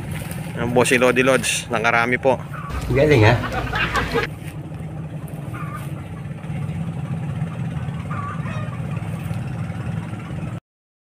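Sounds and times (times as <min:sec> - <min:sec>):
small engine idling: 0:02.4 - 0:10.6.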